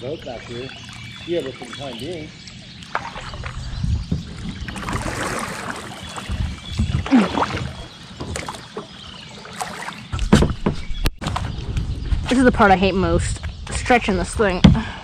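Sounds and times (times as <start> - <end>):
paddle splashing in water: 0.4 - 10.6.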